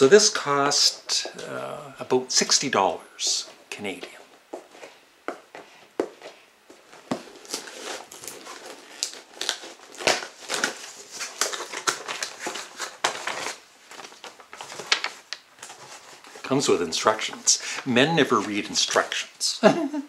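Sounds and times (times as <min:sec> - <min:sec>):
packaging crinkling and rustling: 0:06.8 - 0:19.2.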